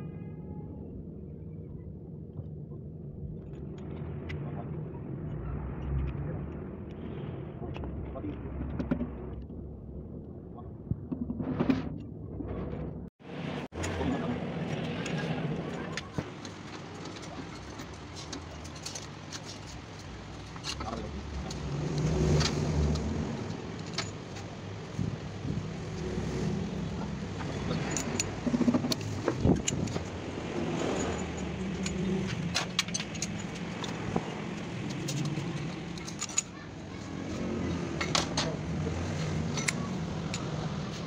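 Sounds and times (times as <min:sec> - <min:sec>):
low motor rumble: 0:00.1 - 0:41.0
metal engine parts clinking: 0:15.7 - 0:21.6, 0:23.4 - 0:24.7, 0:26.1 - 0:41.0.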